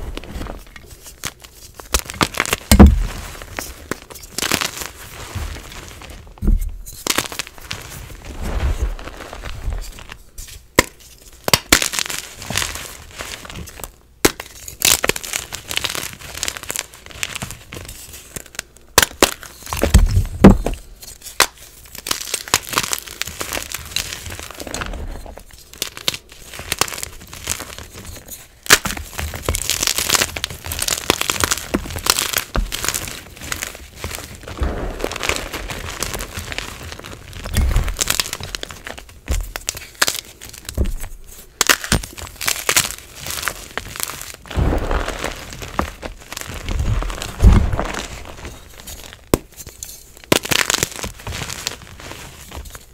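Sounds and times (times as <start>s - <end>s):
hands crushing chalk blocks: 0.0s - 6.3s, 6.9s - 52.9s
chalk chunks snapping: 41.6s - 51.2s.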